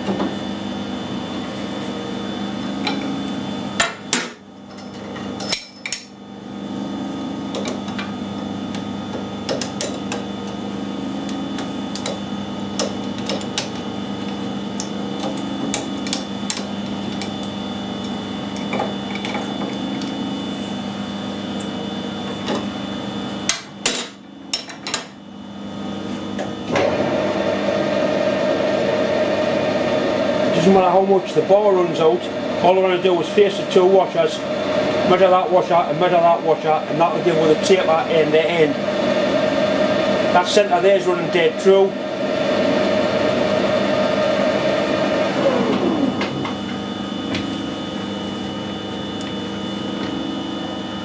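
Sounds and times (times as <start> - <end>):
lathe running: 0.0 - 23.9, 25.8 - 51.0
machine hum: 0.0 - 51.0.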